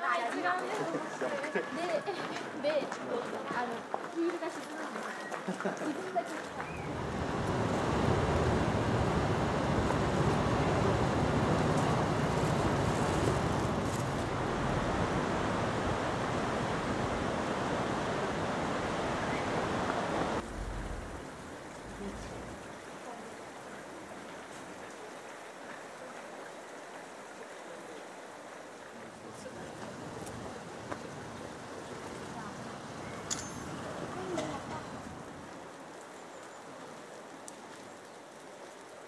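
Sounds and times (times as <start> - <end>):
river rushing over rocks: 6.4 - 32.8.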